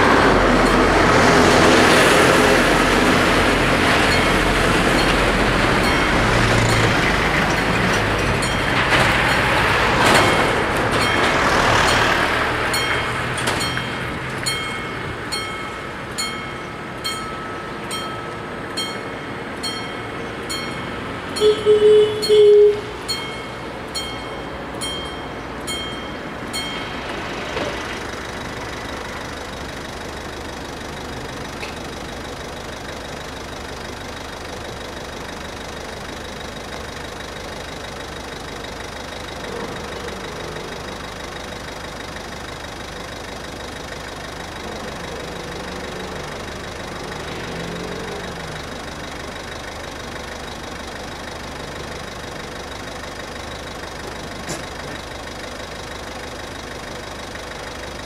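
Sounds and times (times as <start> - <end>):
level-crossing bells ringing: 0.0 - 1.7, 3.2 - 33.8
hum of waiting traffic: 0.0 - 58.0
short loud tone: 21.4 - 23.6.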